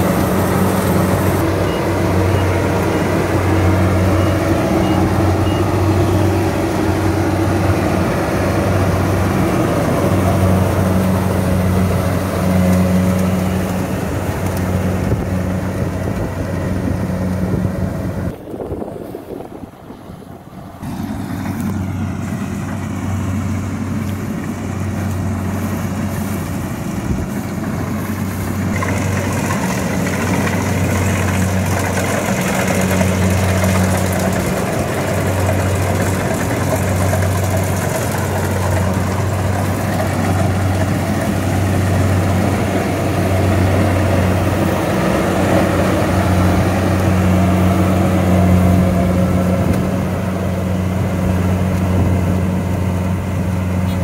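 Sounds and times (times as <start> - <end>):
diesel engine drone: 0.0 - 54.0
harvester machinery rattling: 0.0 - 54.0.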